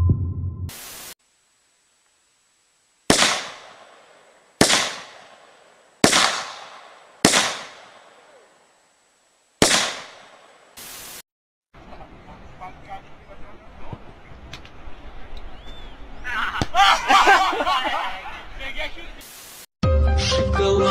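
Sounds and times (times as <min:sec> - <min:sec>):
rifle shots: 0:03.1 - 0:08.3, 0:09.6 - 0:10.6.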